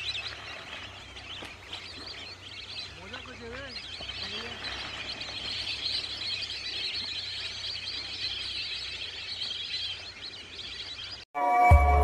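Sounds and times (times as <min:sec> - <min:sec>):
ducks whistling chirps: 0:00.0 - 0:11.2.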